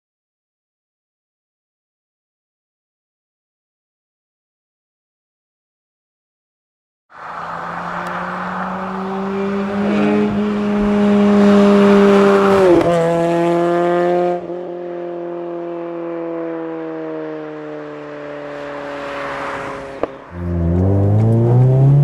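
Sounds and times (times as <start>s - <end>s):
car engine driving past: 7.2s - 14.4s, 18.5s - 22.0s.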